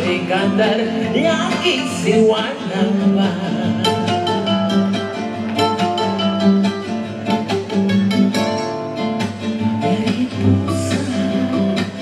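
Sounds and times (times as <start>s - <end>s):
live band instrumental music: 0.0s - 12.0s
quickly picked guitar notes: 0.0s - 12.0s.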